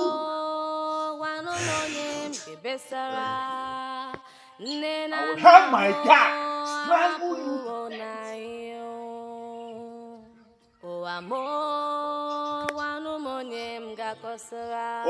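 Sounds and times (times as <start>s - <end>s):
slow music of held notes: 0.0s - 4.5s, 5.2s - 10.8s.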